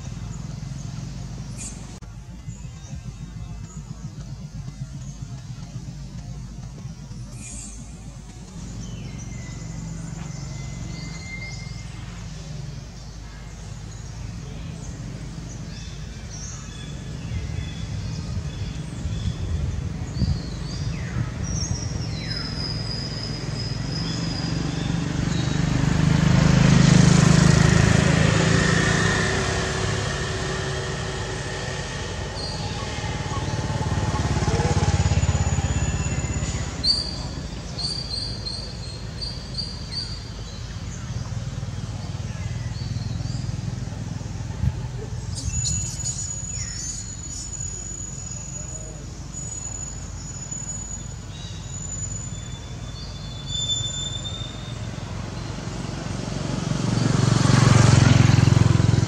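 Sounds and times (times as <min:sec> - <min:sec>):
vehicle engine passing: 0:00.0 - 0:59.0
bird chirps and whistles: 0:51.6 - 0:54.9.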